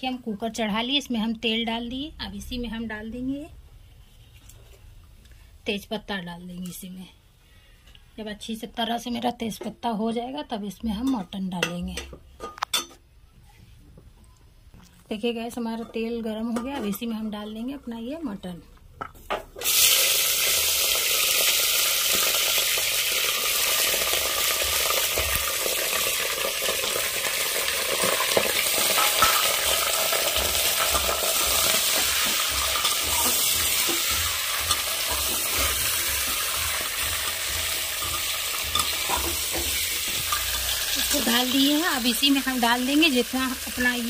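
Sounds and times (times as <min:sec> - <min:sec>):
meat sizzling in hot oil: 0:19.6 - 0:44.0.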